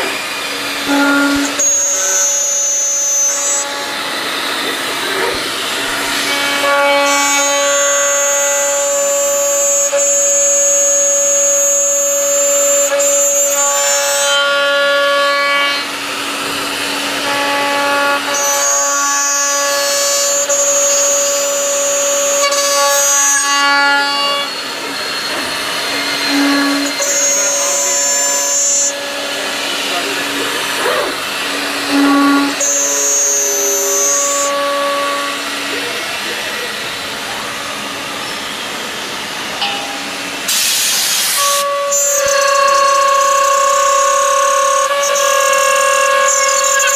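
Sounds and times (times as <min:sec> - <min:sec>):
milling machine cutting whine: 0:00.0 - 0:46.9
spindle whine: 0:00.0 - 0:46.9.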